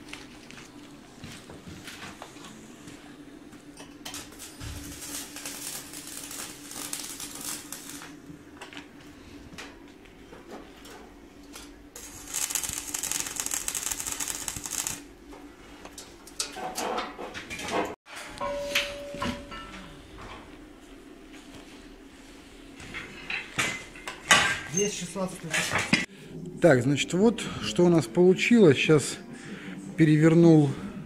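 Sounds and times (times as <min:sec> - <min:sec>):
welding arc crackling and hissing: 0:04.1 - 0:08.3, 0:11.5 - 0:15.2.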